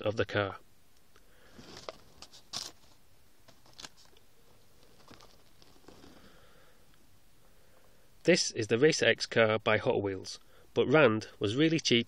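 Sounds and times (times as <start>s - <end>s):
plastic blister packs crinkling: 1.5s - 6.3s.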